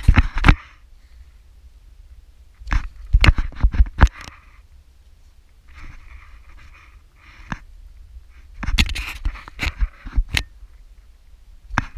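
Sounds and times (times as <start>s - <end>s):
hard breathing: 5.7s - 8.6s.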